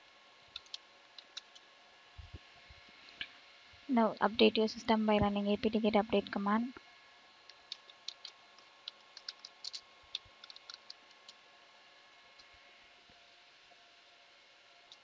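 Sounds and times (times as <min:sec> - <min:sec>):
keyboard keys clicking: 0:00.5 - 0:01.6, 0:07.7 - 0:11.4.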